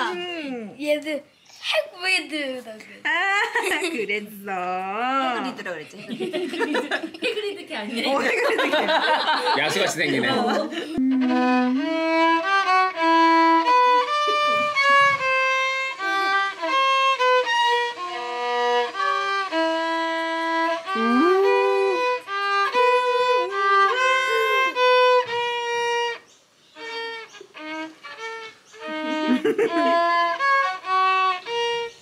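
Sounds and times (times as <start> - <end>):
violin-like melody: 10.9 - 32.0.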